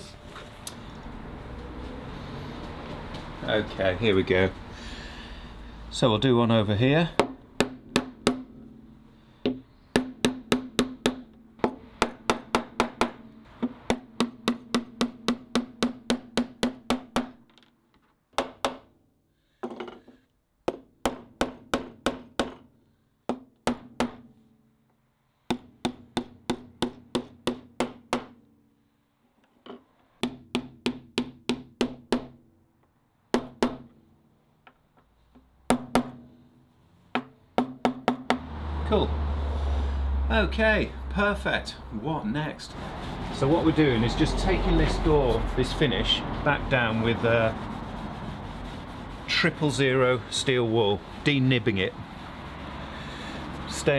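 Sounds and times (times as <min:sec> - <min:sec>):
hammer striking nails: 0:07.2 - 0:08.8, 0:09.4 - 0:17.6, 0:18.3 - 0:18.9, 0:20.6 - 0:22.7, 0:23.3 - 0:24.4, 0:25.5 - 0:28.4, 0:30.2 - 0:32.4, 0:33.3 - 0:34.0, 0:35.7 - 0:36.4, 0:37.2 - 0:38.4.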